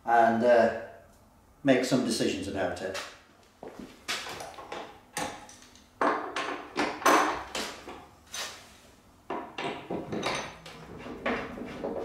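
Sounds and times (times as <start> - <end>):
metallic knocks and clanks: 4.6 - 8.0, 9.3 - 12.0.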